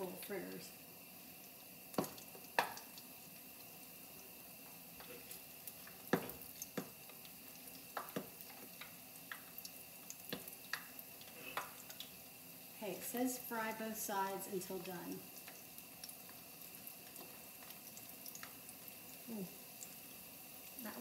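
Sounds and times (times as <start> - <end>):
batter sizzling in hot oil: 0.0 - 21.0
oil popping and clicking: 1.9 - 3.1, 5.2 - 12.1.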